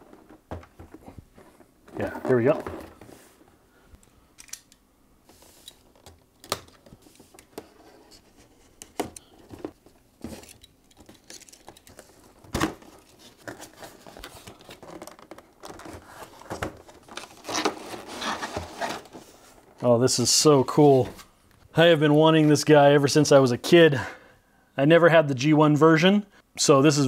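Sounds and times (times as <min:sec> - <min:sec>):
packaging crinkling and rustling: 0:09.4 - 0:19.9.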